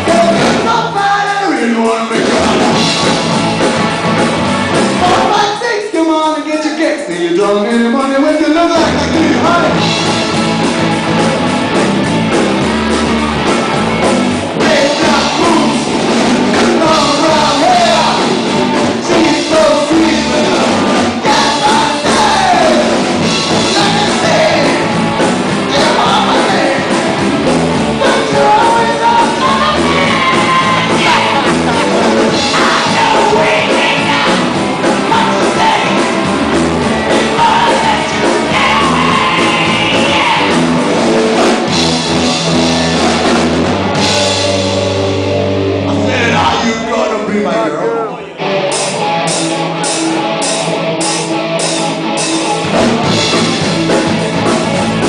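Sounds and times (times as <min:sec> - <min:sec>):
live rock band playing: 0:00.0 - 0:05.9, 0:07.0 - 0:55.0
person singing and shouting: 0:05.0 - 0:09.8, 0:14.6 - 0:24.9, 0:25.7 - 0:27.0, 0:28.0 - 0:36.0, 0:37.1 - 0:40.7, 0:45.8 - 0:48.5.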